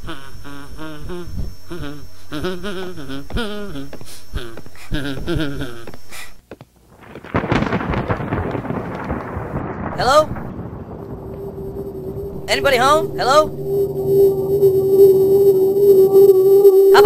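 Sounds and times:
person singing long notes: 0.0s - 6.0s, 12.3s - 17.0s
low steady hum: 0.0s - 9.2s, 9.8s - 17.0s
rain: 6.9s - 13.9s
thunder rumble: 6.9s - 17.0s.

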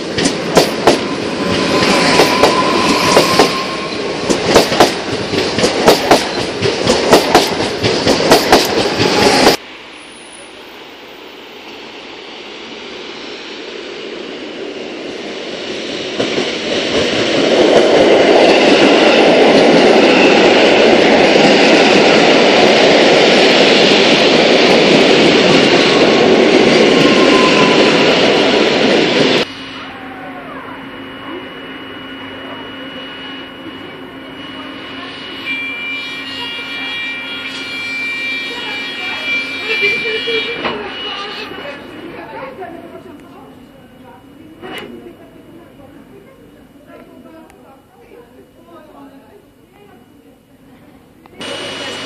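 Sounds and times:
train wheels rumbling: 0.0s - 45.2s
steady train hum: 0.0s - 52.0s
faint wheel squeal: 35.2s - 41.6s.

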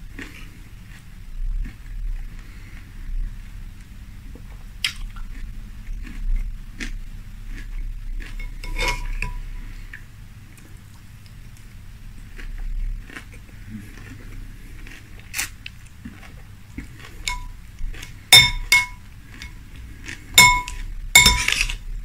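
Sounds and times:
spoon clinking against glass bowl: 8.4s - 9.4s, 17.3s - 17.6s, 18.4s - 19.6s, 20.4s - 21.8s.

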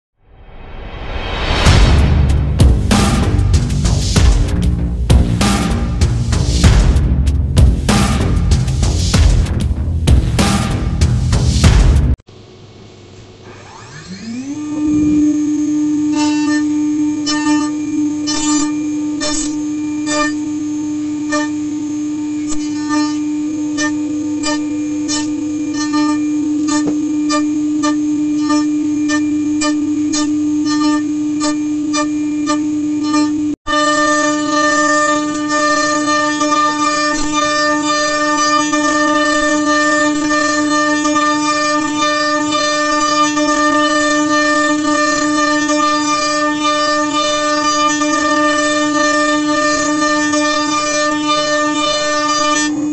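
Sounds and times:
sharp cutting hits: 0.4s - 12.2s
router spindle whining: 12.5s - 52.9s.

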